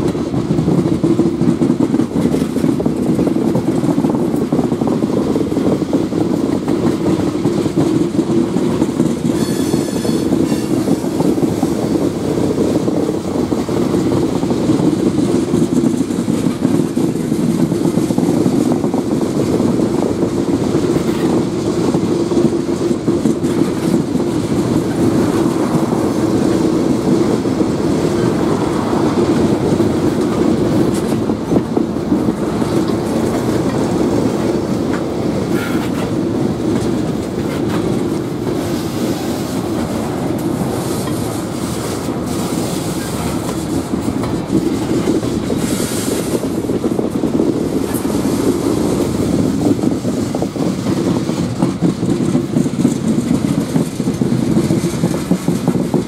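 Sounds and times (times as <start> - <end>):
train wheels rumbling on rails: 0.0 - 56.0
high-pitched wheel squeal: 9.3 - 11.0.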